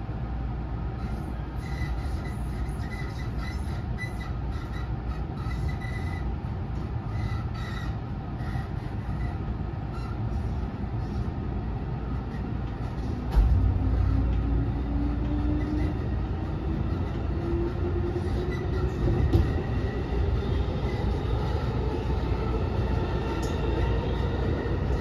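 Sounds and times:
train wheels rumbling on rail: 0:00.0 - 0:25.0
wheels squealing: 0:01.1 - 0:11.2.

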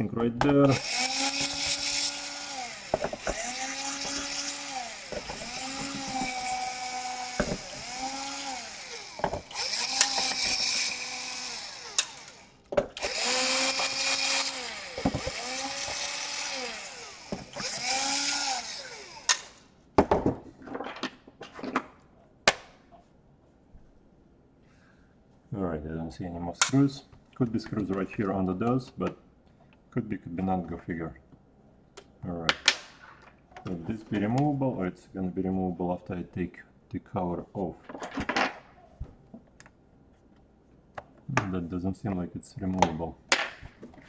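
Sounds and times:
cordless drill motor whirring: 0:00.7 - 0:19.6.

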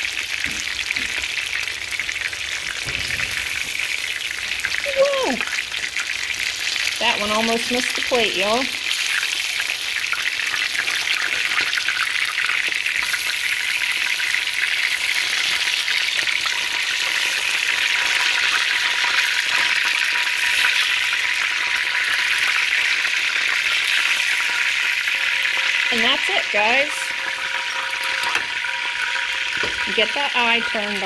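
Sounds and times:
fish frying in hot oil: 0:00.0 - 0:31.0.

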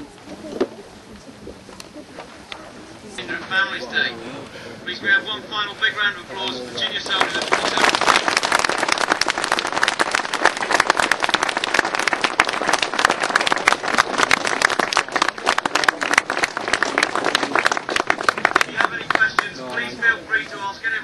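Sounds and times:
crowd applauding: 0:06.8 - 0:20.0.

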